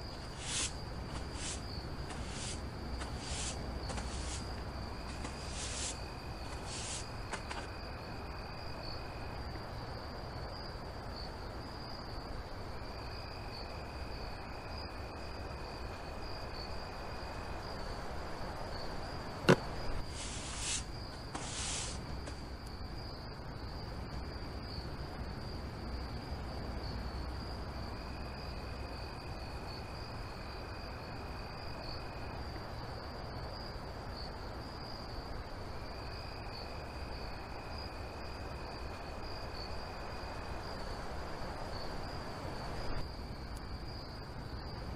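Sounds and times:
faint hiss: 0:00.0 - 0:07.4, 0:19.8 - 0:22.4
crickets trilling: 0:00.0 - 0:44.9
broom sweeping floor: 0:00.2 - 0:07.1, 0:20.0 - 0:22.1.

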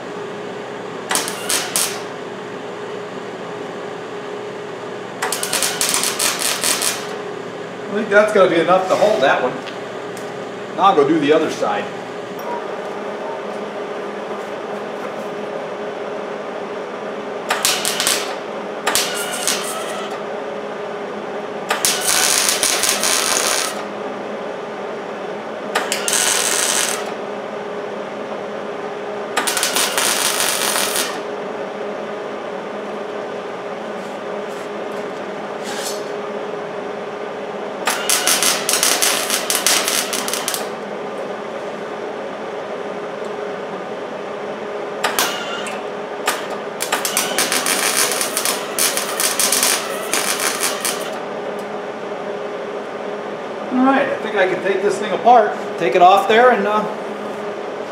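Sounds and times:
steady background hum: 0:00.0 - 0:57.9
welding arc crackling: 0:01.1 - 0:02.2, 0:05.2 - 0:07.3, 0:17.5 - 0:20.1, 0:21.7 - 0:23.9, 0:25.8 - 0:27.2, 0:29.4 - 0:31.3, 0:37.8 - 0:40.8, 0:46.3 - 0:51.2.

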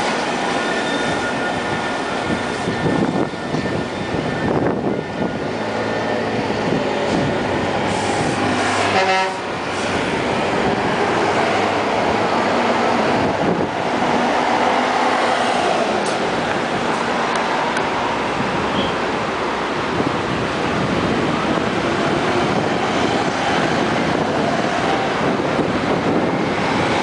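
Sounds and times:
elevated metro train running: 0:00.0 - 0:27.0
road traffic and buses: 0:00.0 - 0:27.0
short horn: 0:07.9 - 0:09.5.

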